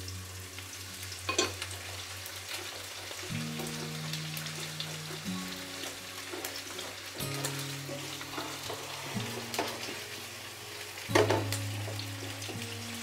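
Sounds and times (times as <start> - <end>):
food sizzling in hot oil: 0.0 - 13.0
soft background music: 0.0 - 13.0
wooden spatula scraping pan: 2.5 - 10.3.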